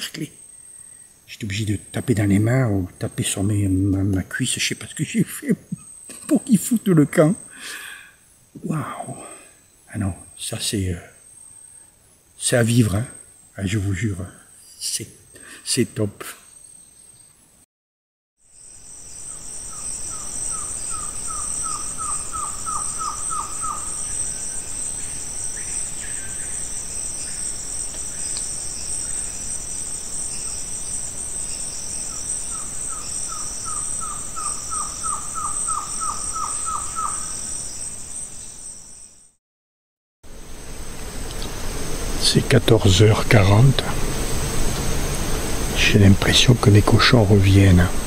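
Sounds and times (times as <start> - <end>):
high-pitched insect drone: 18.4 - 39.4.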